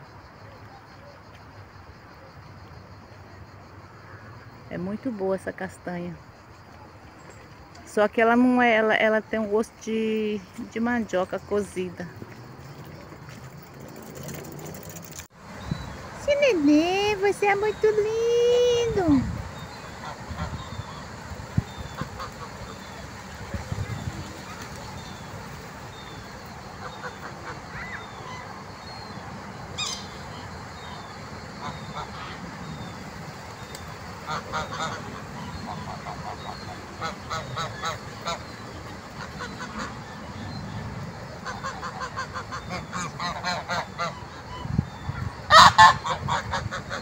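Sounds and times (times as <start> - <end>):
geese honking: 34.2 - 40.3, 41.4 - 44.7, 45.5 - 47.0.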